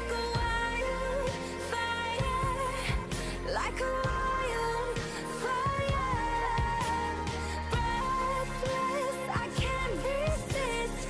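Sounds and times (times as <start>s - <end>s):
pop song: 0.0s - 11.0s
slow steady drum beat: 2.2s - 11.0s.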